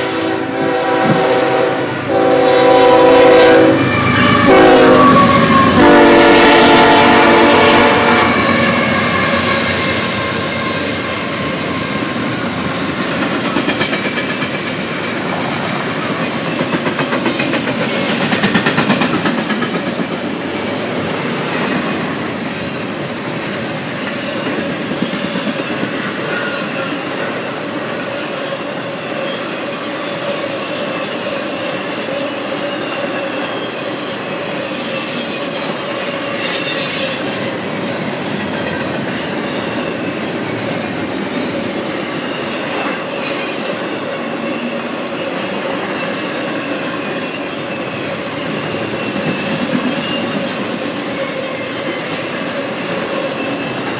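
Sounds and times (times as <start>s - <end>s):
steel wheels rumbling on rail: 0.0s - 53.9s
high wheel squeal: 28.2s - 40.6s, 44.2s - 50.6s.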